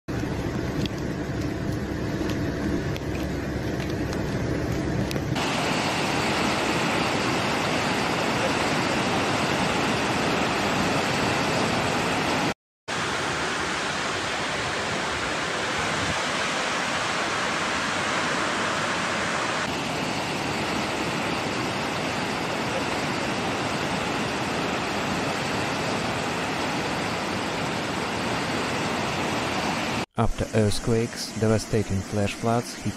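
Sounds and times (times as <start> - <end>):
floodwater rushing: 5.4 - 30.0.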